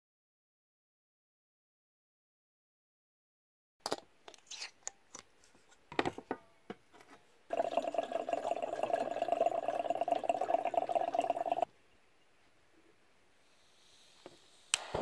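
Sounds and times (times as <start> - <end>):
liquid pouring: 7.5 - 11.7.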